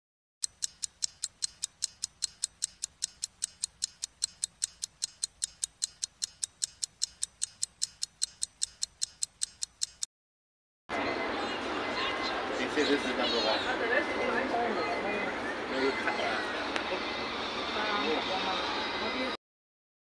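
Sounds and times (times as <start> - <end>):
clock ticking: 0.4 - 10.1.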